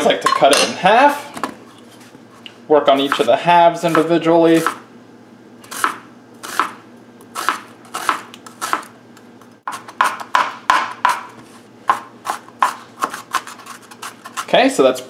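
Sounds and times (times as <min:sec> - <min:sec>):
knife chopping on wooden board: 0:03.1 - 0:04.8, 0:05.7 - 0:06.8, 0:07.4 - 0:08.9, 0:09.7 - 0:13.5.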